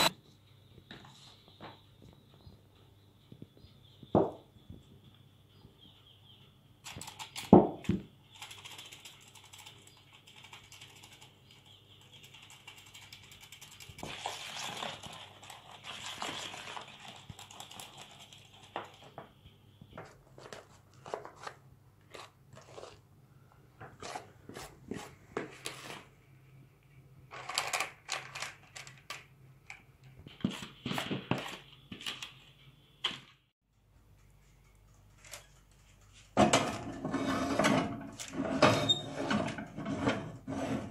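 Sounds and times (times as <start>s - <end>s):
spatula scraping plastic bowl: 20.4s - 23.1s, 23.9s - 26.1s, 36.8s - 40.9s.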